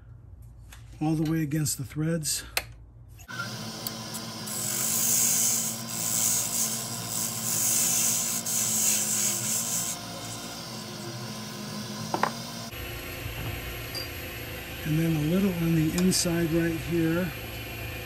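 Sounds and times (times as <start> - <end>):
blade scraping spinning workpiece: 3.2 - 12.7
lathe motor humming: 3.3 - 13.3.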